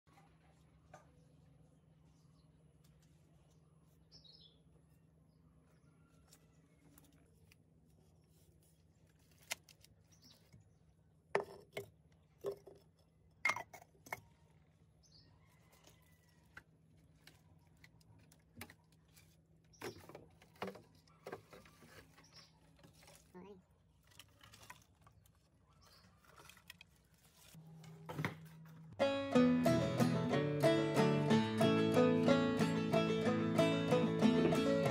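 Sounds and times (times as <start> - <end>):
pots and bricks knocking and scraping: 11.3 - 14.5, 19.8 - 22.2.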